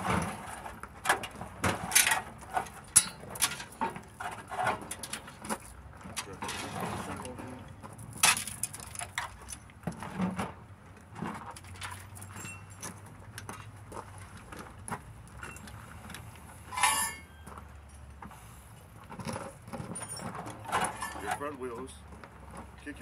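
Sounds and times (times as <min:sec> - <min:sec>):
hoist chain clinking and rattling: 0:11.6 - 0:13.7, 0:15.3 - 0:18.2, 0:19.2 - 0:21.8.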